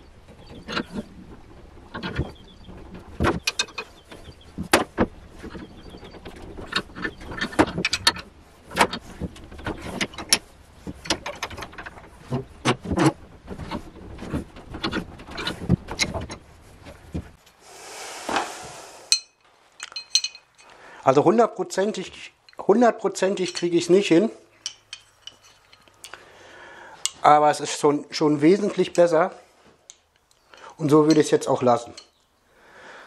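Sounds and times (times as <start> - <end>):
metallic clicks and knocks: 0.2 - 17.4, 24.6 - 26.2
short rushing noise: 17.6 - 19.1.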